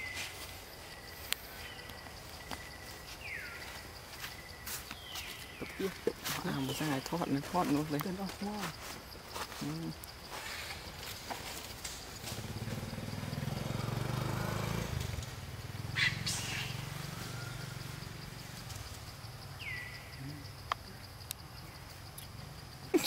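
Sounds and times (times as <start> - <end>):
motor engine droning: 12.2 - 19.1.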